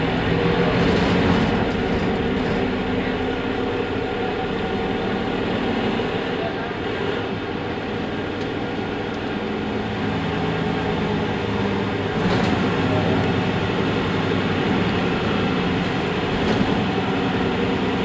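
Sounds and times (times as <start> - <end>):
bus engine idling: 0.0 - 18.0.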